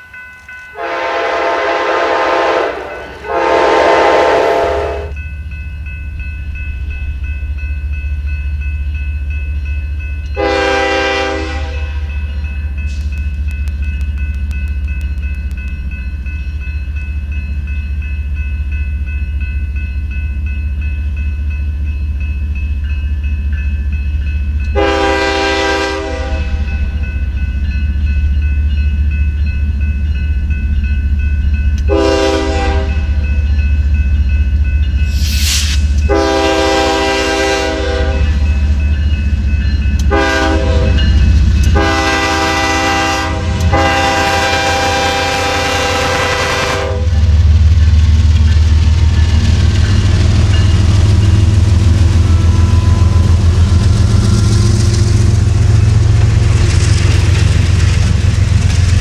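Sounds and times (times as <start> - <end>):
diesel locomotive rumble: 0.7 - 59.0
locomotive air horn blasts: 0.8 - 5.2, 10.4 - 12.1, 24.8 - 26.6, 31.9 - 33.1, 36.1 - 38.4, 40.1 - 41.0, 41.7 - 47.2.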